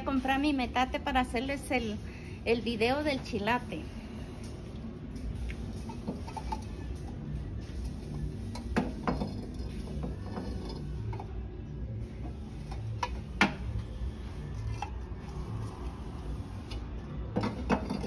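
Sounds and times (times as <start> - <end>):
clay bowls clinking: 8.6 - 11.4, 17.3 - 18.0.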